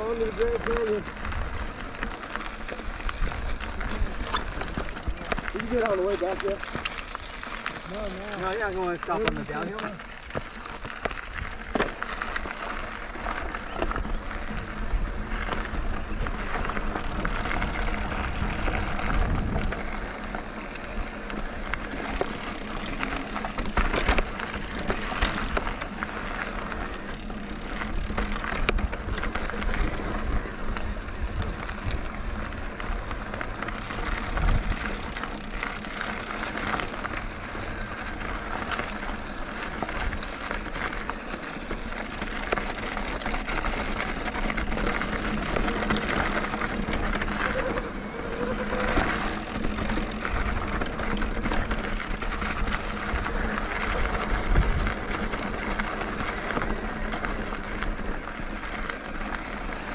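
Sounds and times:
bike knocks and rattles: 0:00.0 - 0:57.9
tyres and wind rushing: 0:13.9 - 0:36.4.

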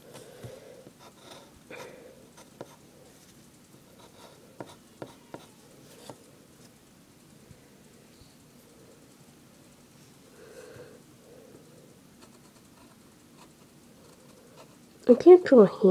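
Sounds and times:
pencil scratching on paper: 0:00.1 - 0:01.6, 0:02.3 - 0:06.7, 0:12.2 - 0:15.3.

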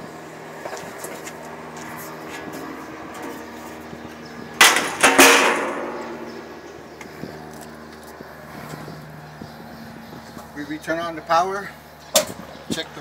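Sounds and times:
metal panel clattering bangs: 0:04.6 - 0:06.4.

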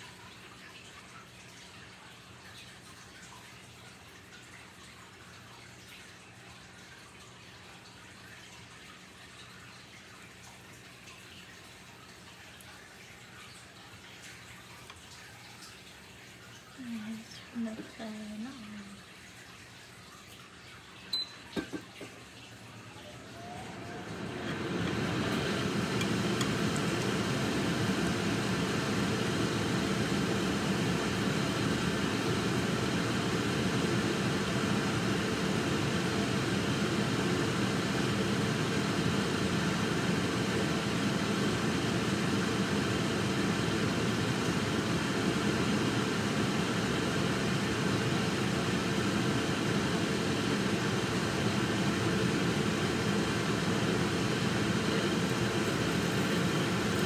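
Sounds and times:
fan blowing air: 0:23.0 - 0:57.0.

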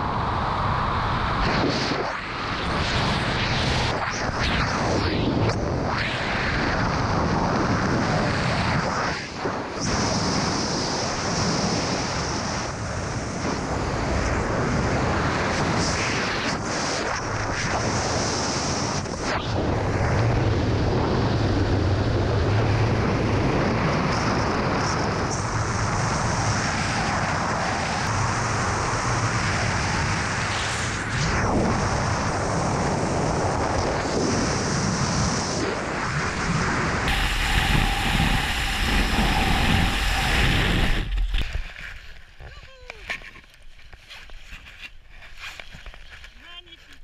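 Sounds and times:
wind rushing over microphone: 0:00.0 - 0:46.2.

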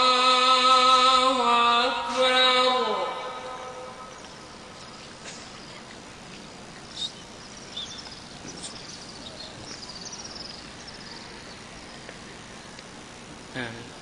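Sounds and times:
faint background hiss: 0:00.0 - 0:14.0
small birds chirping: 0:04.0 - 0:14.0.

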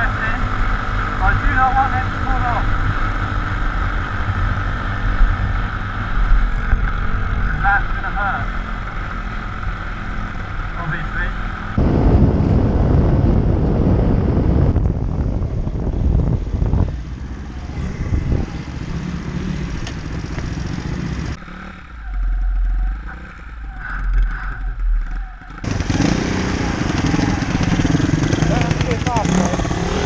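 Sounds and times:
wind buffeting microphone: 0:11.8 - 0:21.4
motorbike engine running: 0:25.4 - 0:30.0.

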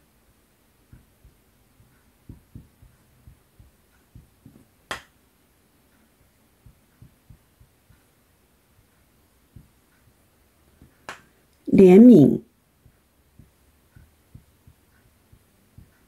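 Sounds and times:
marker knocking on whiteboard: 0:00.9 - 0:05.1, 0:06.6 - 0:08.0, 0:12.8 - 0:16.0.

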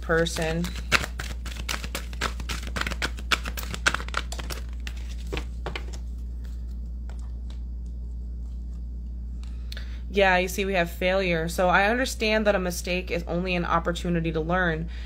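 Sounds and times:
cards shuffling: 0:00.0 - 0:08.8
low hum: 0:00.0 - 0:14.2.

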